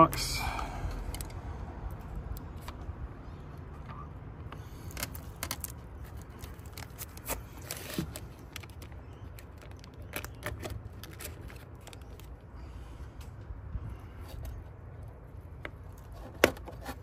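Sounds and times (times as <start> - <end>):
small clicks and scrapes: 3.7 - 12.4
plastic bag crinkling: 4.9 - 12.3.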